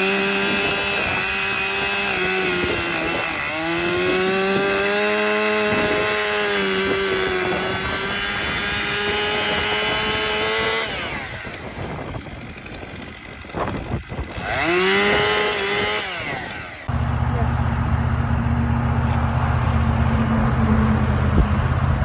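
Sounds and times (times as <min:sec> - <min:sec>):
chainsaw cutting log: 0:00.0 - 0:16.9.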